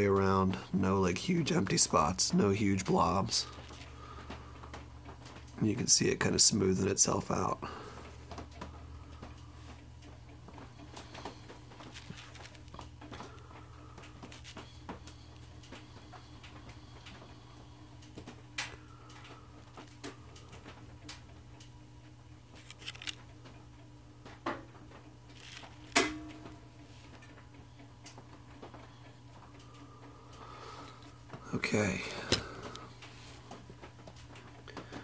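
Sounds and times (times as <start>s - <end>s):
steady low hum: 0.0s - 35.0s
small clicks: 22.5s - 23.6s.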